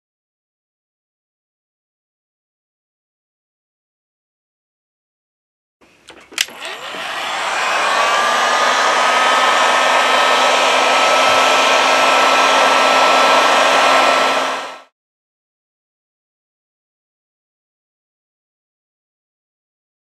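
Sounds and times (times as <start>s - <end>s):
heat gun switch clicks: 6.1s - 7.2s
heat gun fan blowing: 6.1s - 14.9s.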